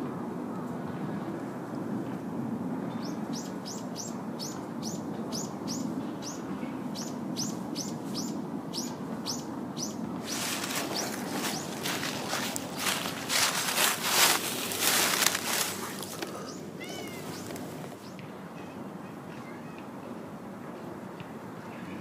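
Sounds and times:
small bird chirping: 7.0 - 14.2, 16.3 - 18.2
footsteps on dry leaves: 10.2 - 18.0.

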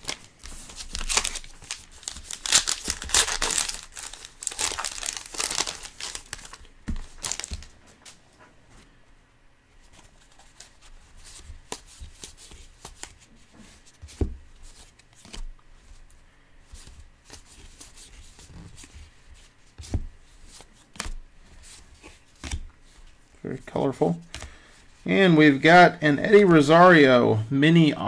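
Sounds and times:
cards being flipped by hand: 9.9 - 16.0.

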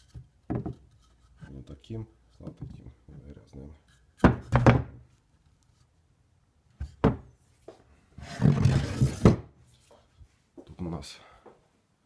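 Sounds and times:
rough scraping noise: 8.2 - 9.3.

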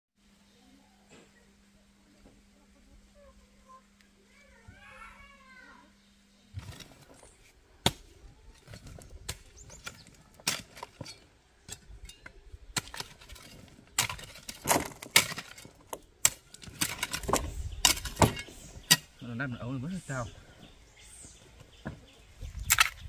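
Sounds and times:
digging tool striking stony soil: 7.8 - 19.1, 22.6 - 23.0.

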